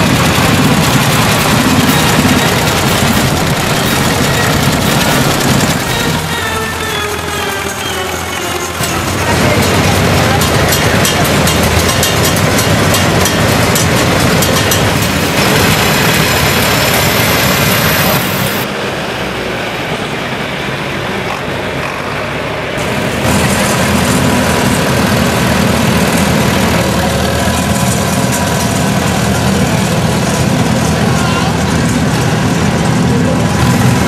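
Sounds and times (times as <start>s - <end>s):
exhaust beats in quick pulses: 0.0s - 18.6s
tractor engines running: 0.0s - 34.0s.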